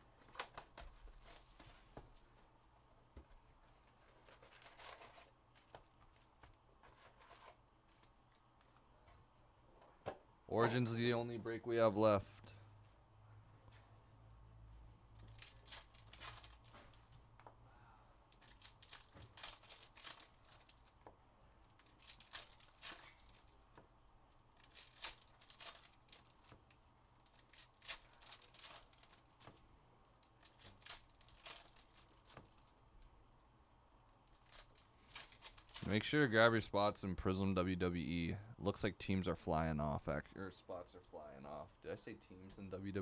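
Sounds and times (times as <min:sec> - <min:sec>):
foil packs tearing and crinkling: 0:15.2 - 0:17.1, 0:18.4 - 0:20.9, 0:21.8 - 0:23.6, 0:24.6 - 0:26.6, 0:27.2 - 0:29.5, 0:30.4 - 0:32.7, 0:34.3 - 0:36.0.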